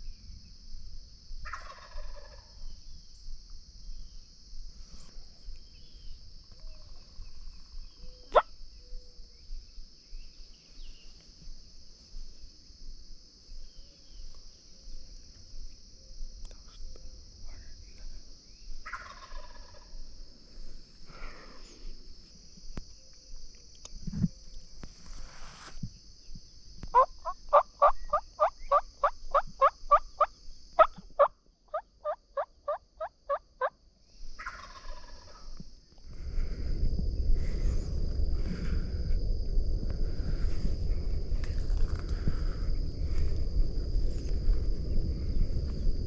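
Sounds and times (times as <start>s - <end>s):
turkey hen yelping: 31.7s - 33.4s.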